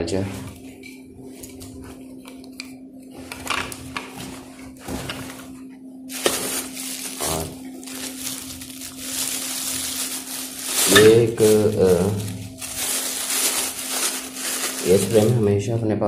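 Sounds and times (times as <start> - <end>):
plastic bags rustling: 0.1 - 15.6
person speaking: 10.8 - 13.0, 14.7 - 15.7.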